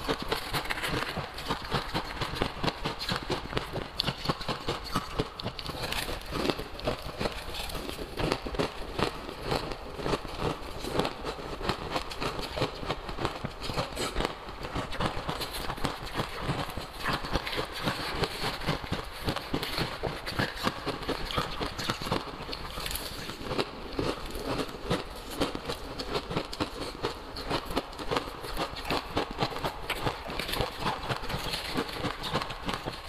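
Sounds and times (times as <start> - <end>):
ice being chewed: 3.0 - 14.2, 19.4 - 33.0.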